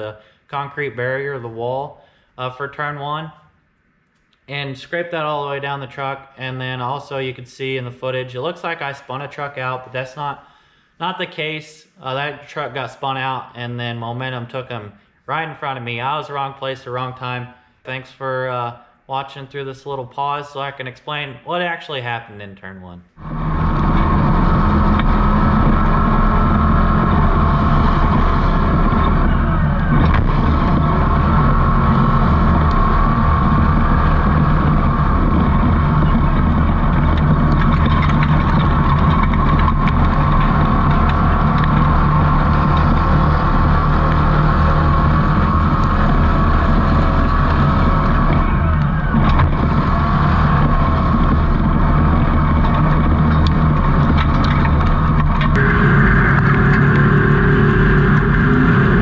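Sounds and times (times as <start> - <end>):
race truck engine running hard: 23.2 - 59.0.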